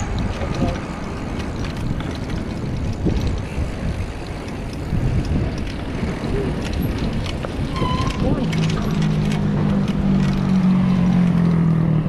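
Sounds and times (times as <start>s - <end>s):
bicycle tyres rolling on brick: 0.0s - 12.0s
wind buffeting microphone: 0.0s - 12.0s.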